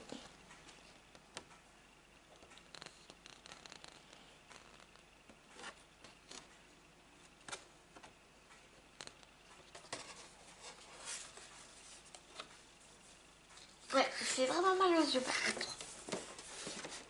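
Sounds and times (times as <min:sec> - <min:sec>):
paper rustling: 0:14.9 - 0:17.0.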